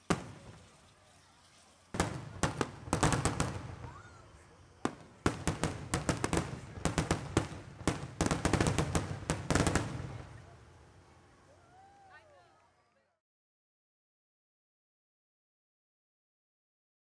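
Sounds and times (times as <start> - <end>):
fireworks bangs in rapid volleys: 0.0 - 11.2.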